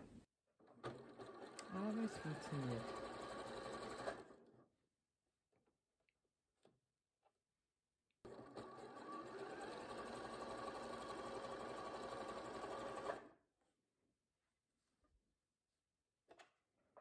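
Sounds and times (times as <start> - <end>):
electric sewing machine running: 0.8 - 4.5, 8.2 - 13.4.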